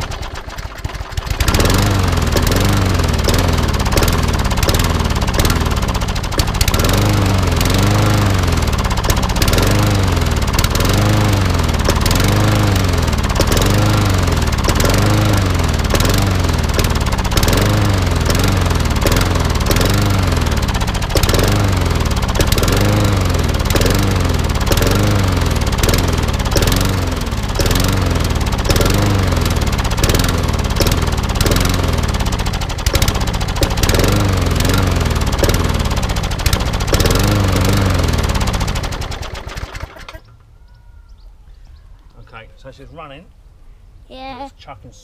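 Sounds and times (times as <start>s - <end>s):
lawn mower engine running unevenly: 0.0s - 40.4s.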